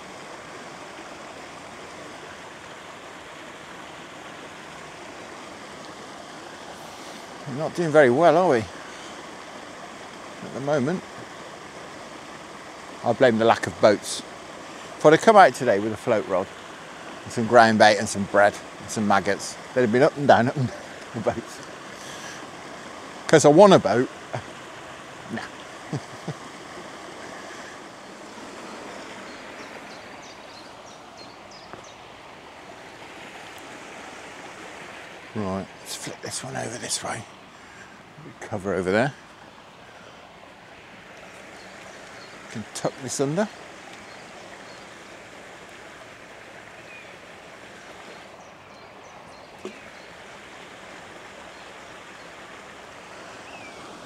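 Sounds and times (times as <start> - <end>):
water rushing through overflow: 0.0 - 54.0
wind: 0.0 - 54.0.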